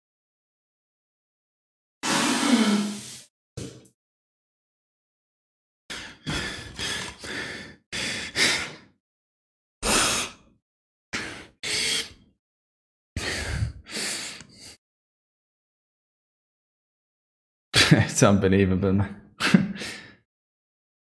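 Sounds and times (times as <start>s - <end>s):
man breathing hard: 5.9s - 9.0s, 11.2s - 12.3s, 13.2s - 14.8s, 19.7s - 20.2s
sharp gasps and heavy sighs: 13.2s - 14.8s, 19.7s - 20.2s.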